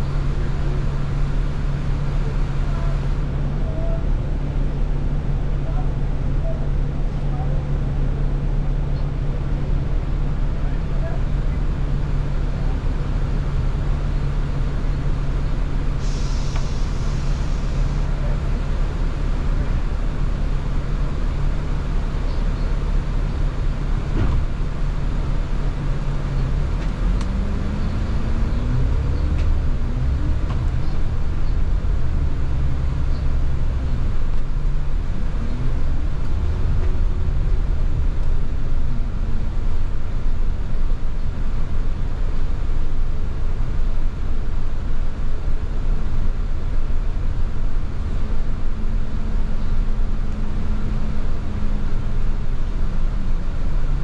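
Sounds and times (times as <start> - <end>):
bus engine accelerating: 0.0 - 54.0
bus engine running: 0.0 - 54.0
air hiss: 16.0 - 18.0.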